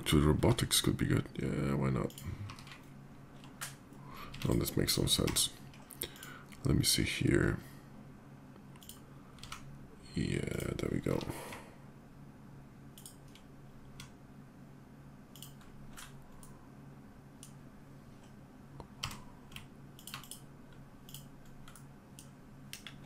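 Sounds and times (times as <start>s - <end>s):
faint low hum: 0.0s - 23.0s
keyboard and mouse clicks: 2.0s - 6.4s, 8.6s - 9.7s, 12.9s - 14.2s, 15.3s - 16.6s, 18.2s - 23.0s.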